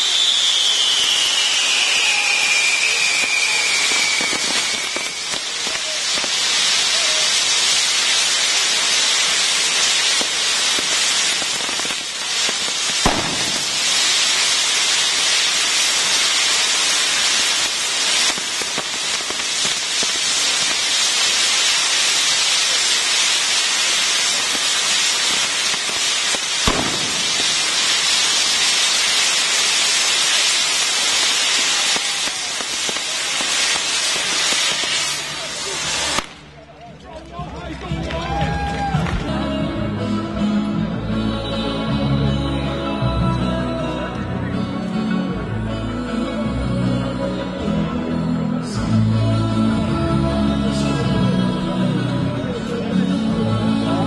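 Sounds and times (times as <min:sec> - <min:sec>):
fireworks burning with loud hiss: 0:00.0 - 0:39.4
sharp bangs: 0:26.6 - 0:28.1.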